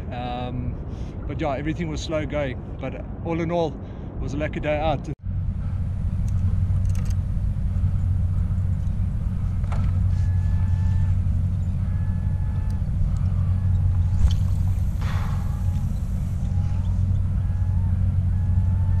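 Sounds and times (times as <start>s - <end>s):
low open-air rumble: 0.0s - 19.0s
faint short tones: 9.7s - 19.0s.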